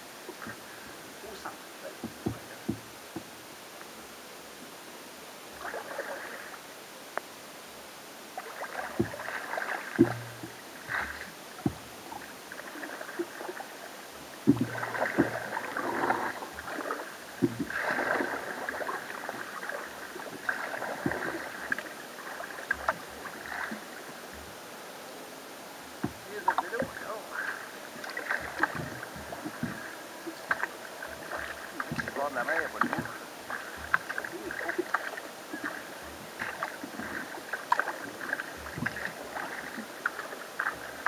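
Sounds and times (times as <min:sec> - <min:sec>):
paddle splashing water: 0:00.0 - 0:04.0, 0:05.5 - 0:06.7, 0:08.3 - 0:41.0
water sloshing along hull: 0:00.0 - 0:04.6, 0:05.5 - 0:06.8, 0:07.7 - 0:41.0
short dull knocks: 0:02.0 - 0:03.3, 0:10.0 - 0:11.9, 0:14.5 - 0:15.5, 0:28.4 - 0:32.2.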